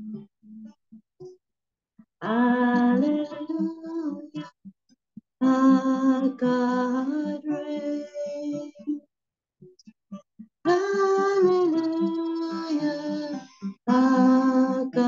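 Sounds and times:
acoustic guitar: 0.0s - 1.4s, 2.0s - 4.8s, 5.4s - 15.0s
woman singing worship song: 2.2s - 4.5s, 5.4s - 9.0s, 10.7s - 15.0s.

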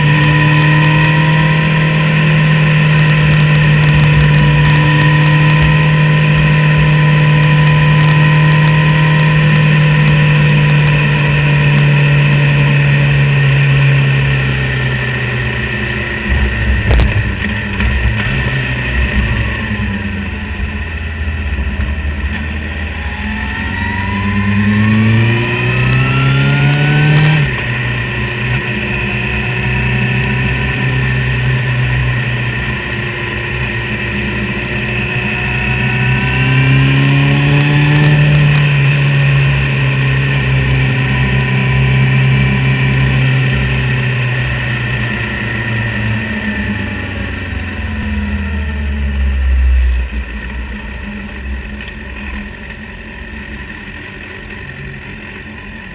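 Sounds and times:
motorcycle engine revving: 0.0s - 55.9s
wind rumble on microphone: 16.2s - 23.0s.

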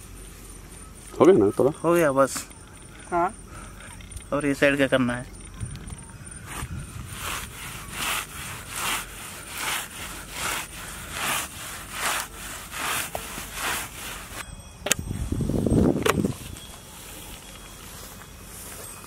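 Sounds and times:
fish scraping against grass: 6.4s - 14.4s.

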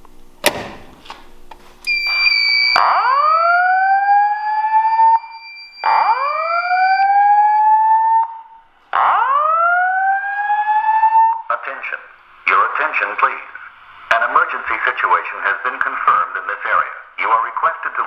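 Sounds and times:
rising whoop alarm: 1.9s - 11.5s
steady high alarm tone: 1.9s - 15.2s.

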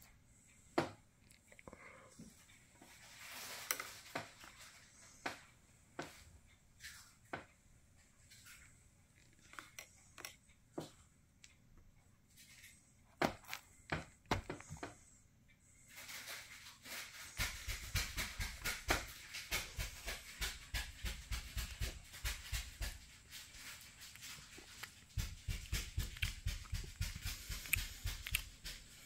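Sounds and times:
rustling and crackling: 2.2s - 11.6s, 15.8s - 29.0s.

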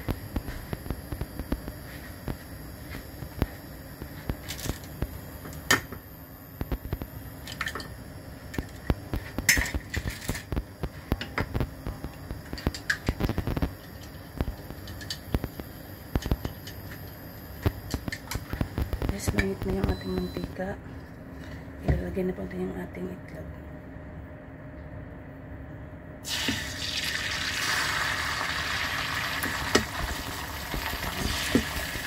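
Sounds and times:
oil popping and crackling: 26.3s - 32.0s.

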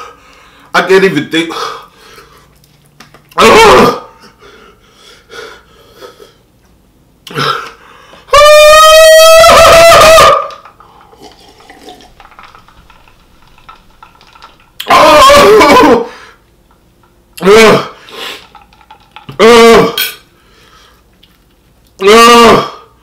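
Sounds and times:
quiet small noises: 0.0s - 8.4s, 9.8s - 23.0s
man's high-pitched wail: 3.4s - 4.1s, 8.3s - 10.6s, 14.8s - 16.2s, 19.4s - 20.0s, 22.0s - 22.8s.

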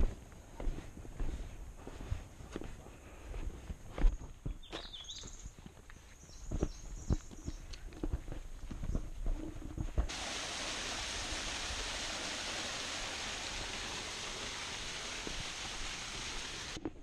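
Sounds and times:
footsteps on dirt trail: 0.0s - 10.2s
waterfall splashing onto rocks: 10.1s - 16.8s.

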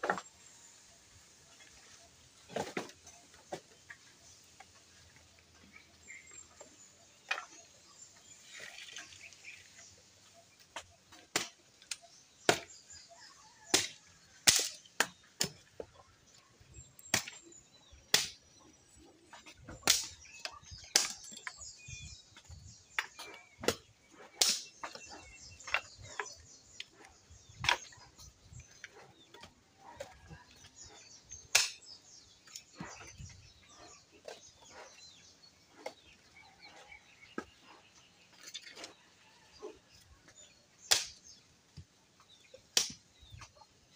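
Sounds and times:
firewood sticks knocking: 13.7s - 15.9s, 18.1s - 18.4s, 19.3s - 21.6s, 22.4s - 27.0s, 31.4s - 31.9s, 40.9s - 41.2s.

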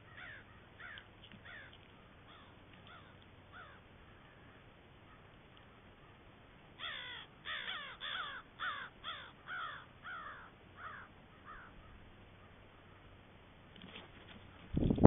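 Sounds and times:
crows cawing: 0.0s - 5.3s, 6.8s - 13.1s.

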